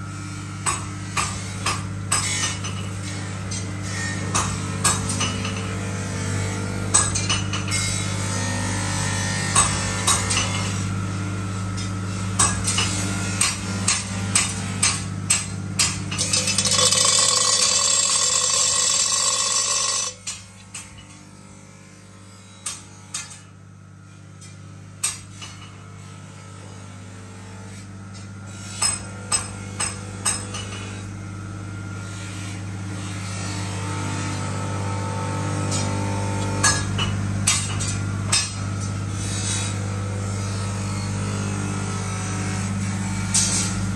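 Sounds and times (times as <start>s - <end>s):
hammer striking steel: 15.8s - 20.3s
loud steady noise: 16.2s - 20.2s.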